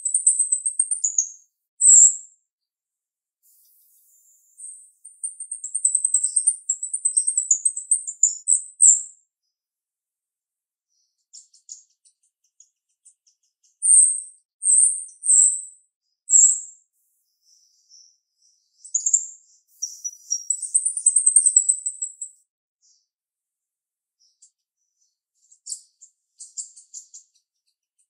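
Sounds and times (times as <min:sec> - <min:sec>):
starling calling: 0:19.8 - 0:22.2.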